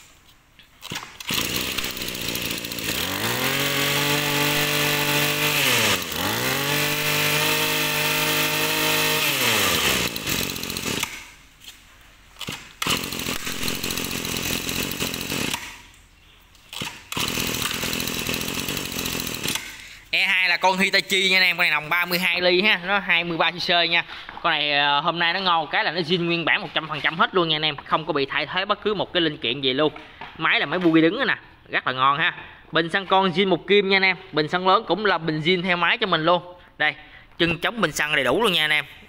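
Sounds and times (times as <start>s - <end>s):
brush cutter engine revving: 0.8s - 11.4s, 12.4s - 16.0s, 16.7s - 22.4s.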